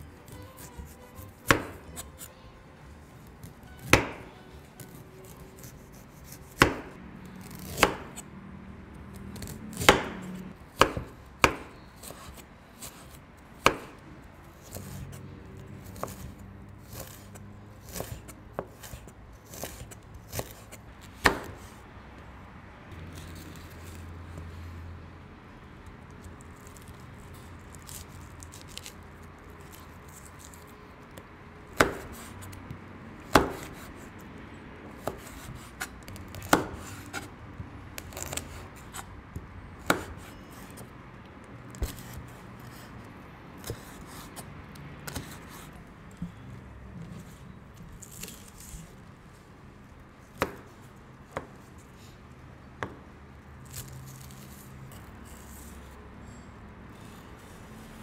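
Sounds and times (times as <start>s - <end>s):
knife chopping on wooden board: 0.3s - 2.3s, 3.8s - 4.3s, 5.7s - 8.2s, 9.4s - 14.0s, 15.9s - 21.7s, 31.7s - 32.6s, 33.2s - 34.0s, 34.9s - 37.3s, 38.1s - 40.9s, 43.6s - 44.4s, 45.1s - 46.3s, 50.3s - 50.7s.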